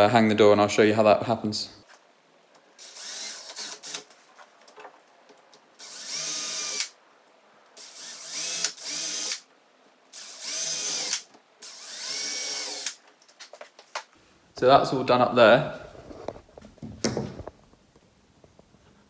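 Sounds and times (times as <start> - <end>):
drill boring into wood: 2.8 - 4.0, 5.8 - 6.9, 7.8 - 9.4, 10.1 - 13.0.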